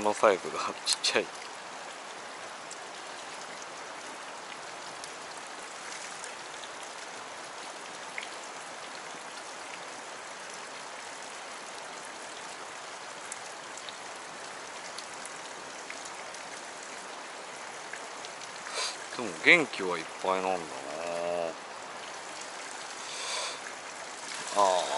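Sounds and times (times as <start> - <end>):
fast-flowing river: 0.0 - 24.9.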